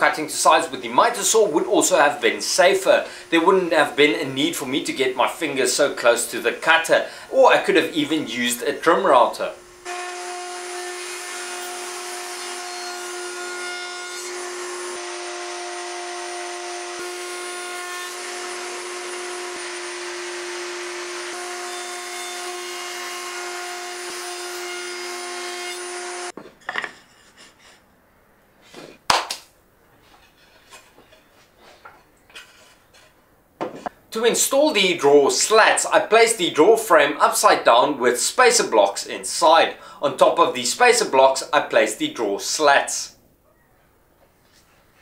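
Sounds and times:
router whining: 9.6s - 26.3s.

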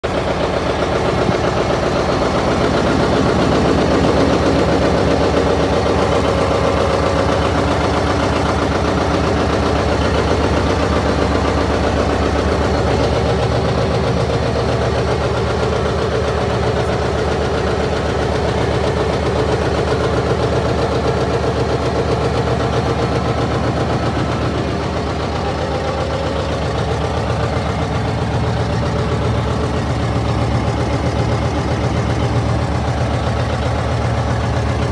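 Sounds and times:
tractor engine idling: 0.0s - 34.9s.

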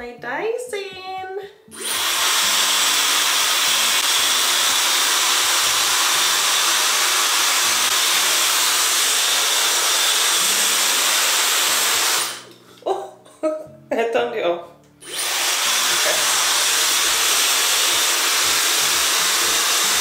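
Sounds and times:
hair dryer running: 1.7s - 12.5s, 15.0s - 20.0s.

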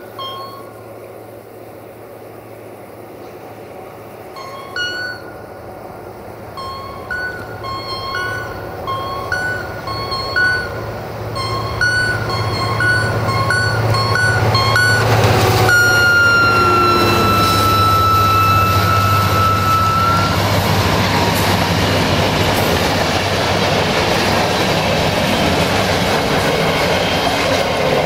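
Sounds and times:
diesel locomotive passing: 0.0s - 28.0s
long high tone: 4.3s - 5.6s, 6.5s - 21.6s
two-note electronic beeping: 4.4s - 5.3s, 6.6s - 20.4s.

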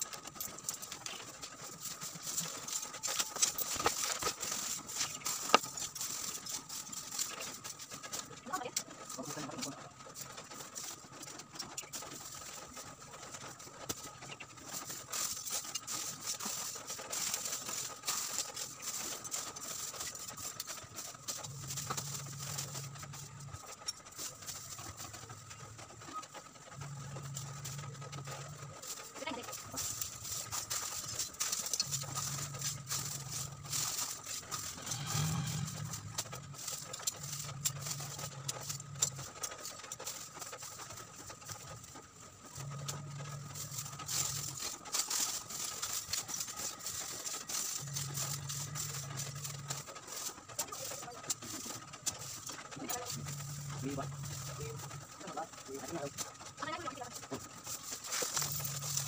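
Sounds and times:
charcoal clinking and rattling: 0.0s - 59.0s
plastic bag rustling: 0.0s - 59.0s.

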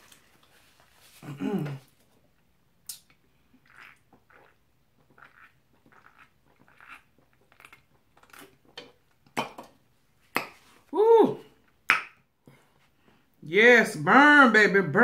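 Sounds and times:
person gulping and swallowing: 1.2s - 2.0s, 2.8s - 9.6s.

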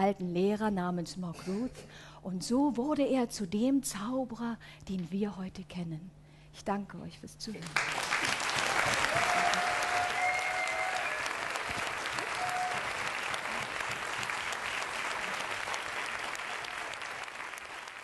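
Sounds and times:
audience applauding: 7.7s - 18.0s.

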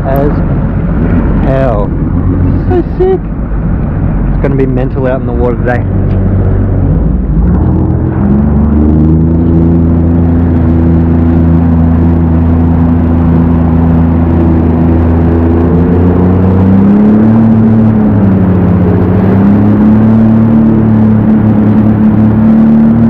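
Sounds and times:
jet ski engine revving: 5.5s - 23.0s.

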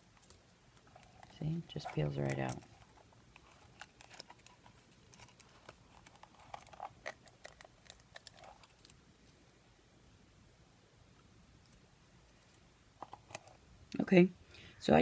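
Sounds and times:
silicone cup crackling and clicking: 2.1s - 9.0s.

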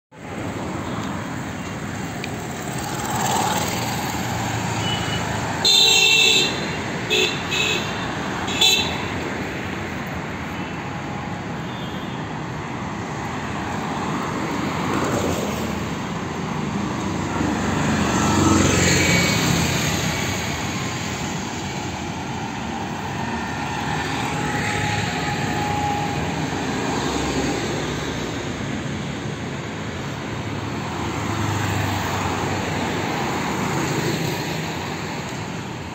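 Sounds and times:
road traffic: 0.1s - 35.9s
vehicle horn honking: 4.8s - 9.1s.

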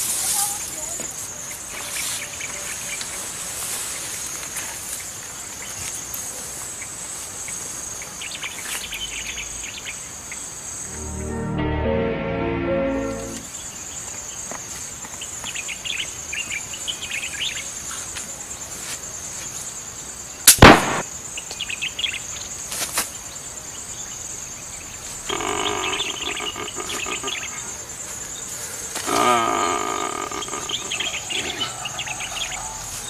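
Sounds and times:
insects chirring: 0.0s - 33.0s
birds chirping: 23.2s - 33.0s
steady pitched call or tone: 25.3s - 27.8s.

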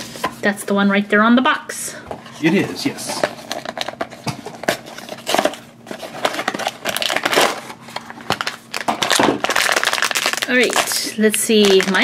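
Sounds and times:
foil bag crinkling: 2.8s - 12.0s.

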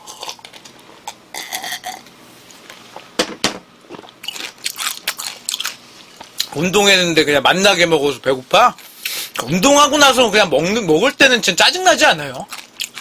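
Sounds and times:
chewing crunchy noodles: 0.0s - 2.0s, 3.9s - 6.6s, 12.4s - 13.0s.

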